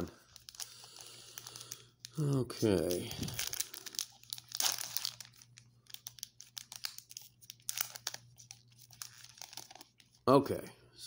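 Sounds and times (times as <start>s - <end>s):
foil wrapper crinkling and tearing: 0.0s - 10.2s.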